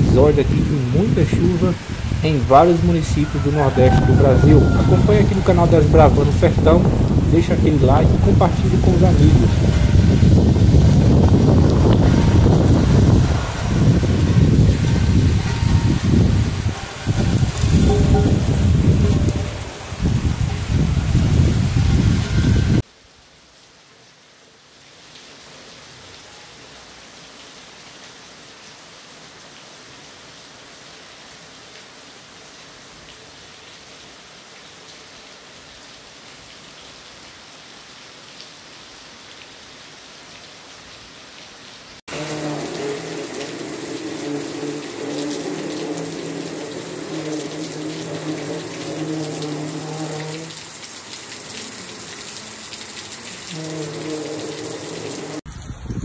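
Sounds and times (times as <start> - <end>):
flooded river rushing: 0.0 - 22.8, 42.0 - 55.5
rain dripping off roof: 0.0 - 56.0.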